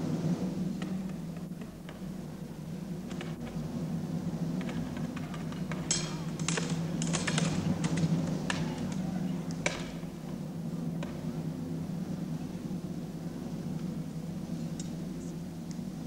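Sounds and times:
steady low hum: 0:00.0 - 0:16.0
sharp metallic clicks and clatters: 0:05.2 - 0:08.6.

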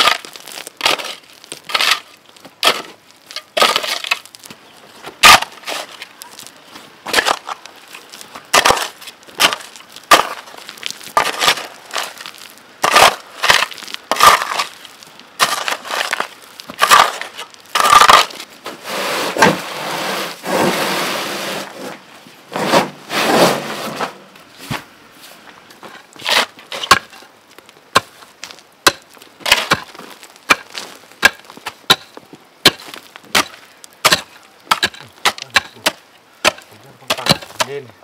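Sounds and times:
shovel scraping into soil: 0:00.0 - 0:04.2, 0:05.2 - 0:06.1, 0:08.5 - 0:10.5, 0:11.2 - 0:14.8, 0:15.4 - 0:27.2
sand sliding from wheelbarrow: 0:18.6 - 0:25.5.

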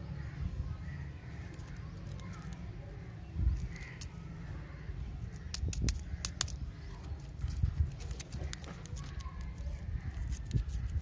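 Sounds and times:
plastic wrapper crackling: 0:07.2 - 0:11.0.

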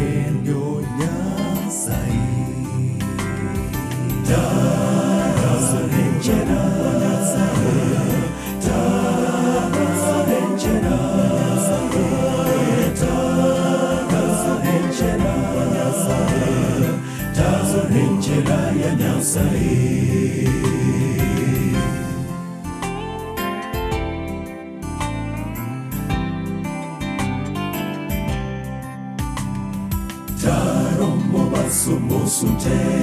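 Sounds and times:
men's choir singing gospel: 0:00.0 - 0:22.7, 0:30.4 - 0:33.0.

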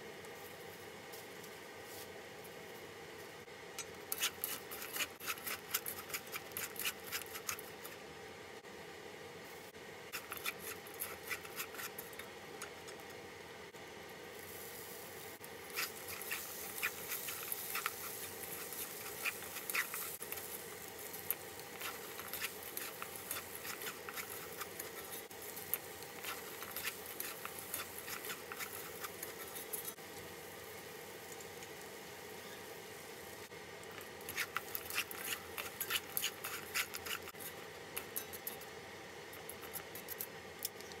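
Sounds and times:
spatula scraping in frying pan: 0:04.1 - 0:07.7, 0:10.2 - 0:12.2, 0:15.7 - 0:30.0, 0:34.3 - 0:38.6
steady background hiss: 0:12.2 - 0:41.0.

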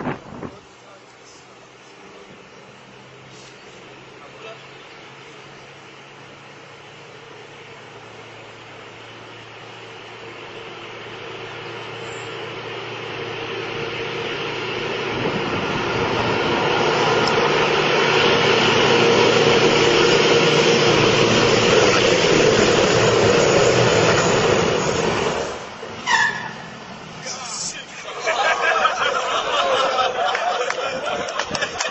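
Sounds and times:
tank engine and tracks: 0:00.0 - 0:31.9
tank braking hard: 0:14.8 - 0:28.7.

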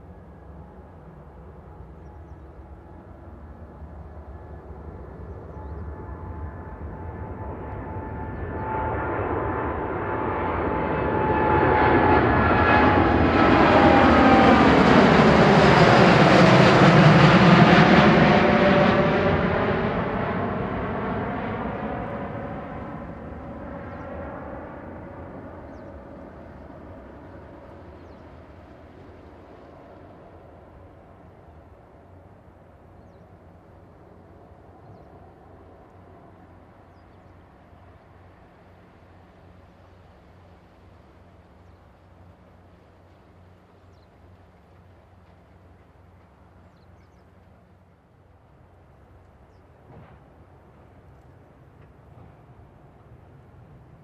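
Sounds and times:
jet airliner taking off: 0:00.2 - 0:32.2.

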